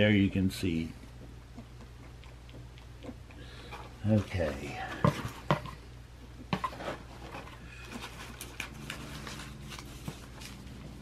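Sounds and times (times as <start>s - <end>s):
packing filler rustling: 6.6s - 11.0s.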